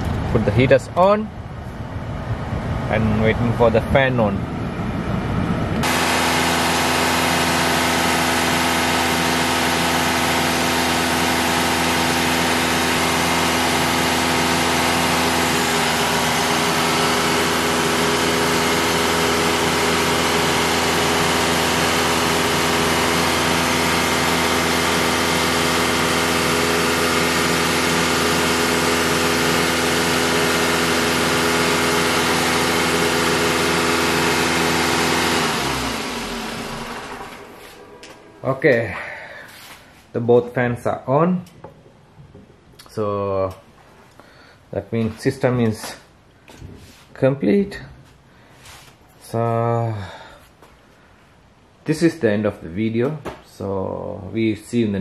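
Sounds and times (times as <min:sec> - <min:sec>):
radiator cooling fans whirring: 0:00.0 - 0:55.0
car engine idling: 0:04.4 - 0:39.6.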